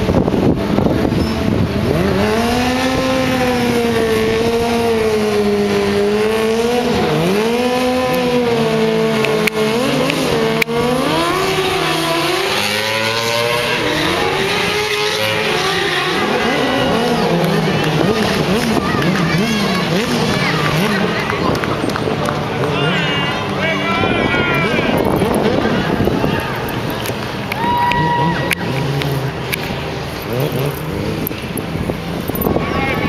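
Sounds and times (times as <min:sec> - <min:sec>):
motorcycle engine revving: 0:00.0 - 0:23.8, 0:24.6 - 0:33.0.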